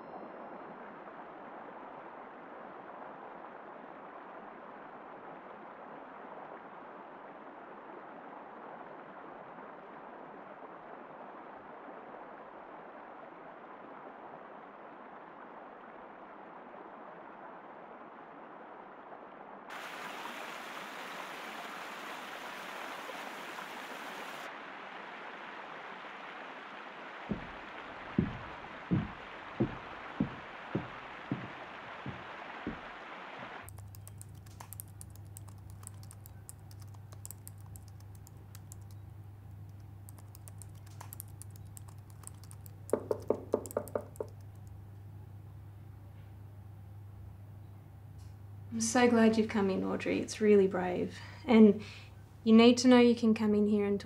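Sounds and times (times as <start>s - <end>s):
river water rushing: 19.7s - 33.7s
footsteps on wooden bridge: 27.3s - 33.7s.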